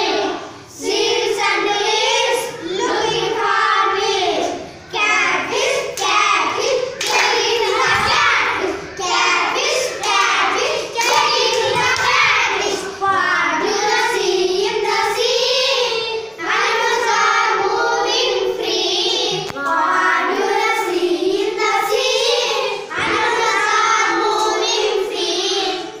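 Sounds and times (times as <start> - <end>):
children singing in unison: 0.0 - 26.0.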